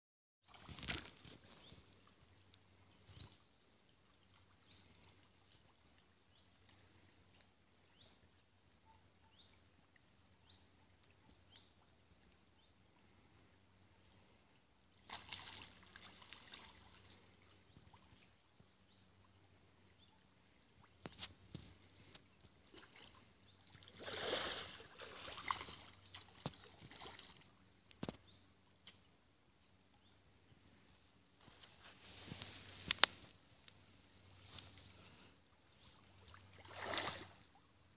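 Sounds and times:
soft rustle: 0:00.5 - 0:07.5, 0:30.6 - 0:37.5
small bird chirping: 0:03.0 - 0:03.5, 0:08.8 - 0:09.6, 0:10.4 - 0:11.9
small splashes at water surface: 0:15.0 - 0:17.1, 0:22.7 - 0:27.4, 0:36.2 - 0:37.5.

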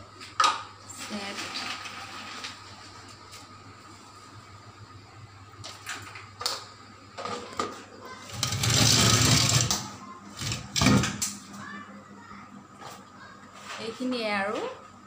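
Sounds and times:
rubbing scrape with low rumble: 0:08.4 - 0:09.7.

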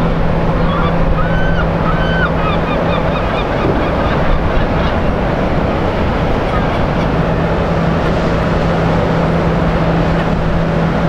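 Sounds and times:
ship engine hum: 0:00.0 - 0:11.0
water noise: 0:00.0 - 0:11.0
wind: 0:00.0 - 0:11.0
birds calling: 0:00.5 - 0:07.2.

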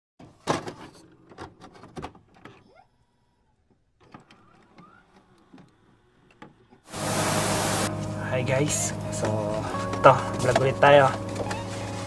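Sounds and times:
short rising tone: 0:06.9 - 0:09.9.

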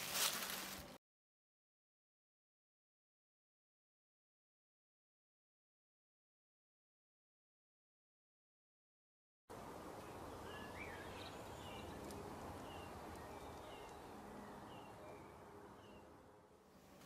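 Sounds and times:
small birds chirping: 0:09.8 - 0:16.1.

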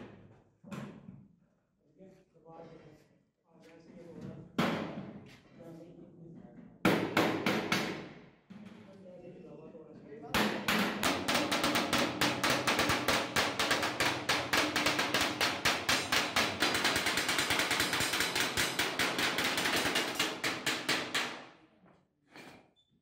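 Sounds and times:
rapid hammering on metal: 0:06.8 - 0:08.1, 0:10.4 - 0:21.5.

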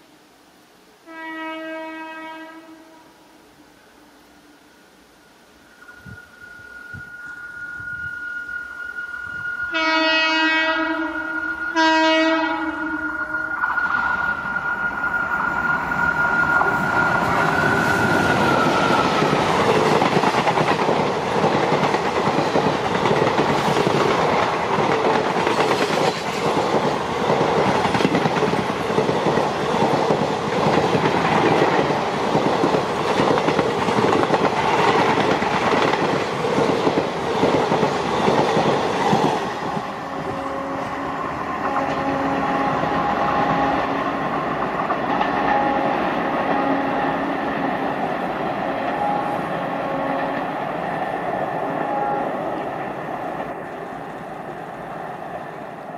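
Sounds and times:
locomotive horn: 0:01.0 - 0:03.3, 0:07.8 - 0:14.6, 0:39.7 - 0:44.3, 0:45.3 - 0:47.4, 0:48.6 - 0:50.6, 0:51.7 - 0:52.6.

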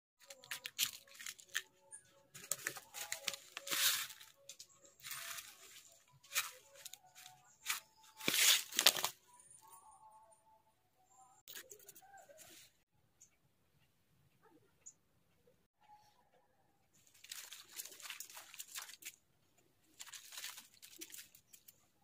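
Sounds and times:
faint music: 0:00.2 - 0:22.0
rustling and scraping: 0:02.4 - 0:09.2.

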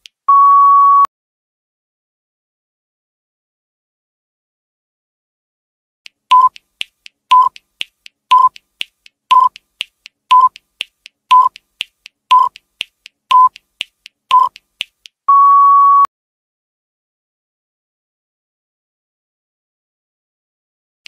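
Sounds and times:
long steady beep: 0:00.3 - 0:01.1, 0:15.3 - 0:16.1
timer ticking: 0:06.1 - 0:15.4
short timer beep: 0:06.3 - 0:06.6, 0:07.3 - 0:07.6, 0:08.3 - 0:08.6, 0:09.3 - 0:09.6, 0:10.3 - 0:10.6, 0:11.3 - 0:11.6, 0:12.3 - 0:12.6, 0:13.3 - 0:13.6, 0:14.3 - 0:14.6, 0:15.3 - 0:16.1.

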